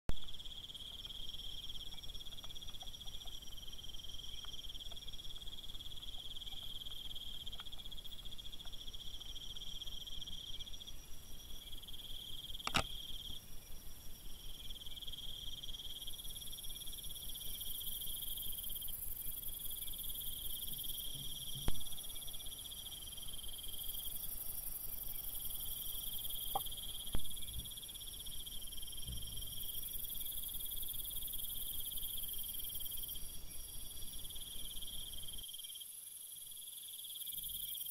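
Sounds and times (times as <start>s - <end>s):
crickets trilling: 0.2s - 37.9s
sharp clicks: 12.6s - 12.9s.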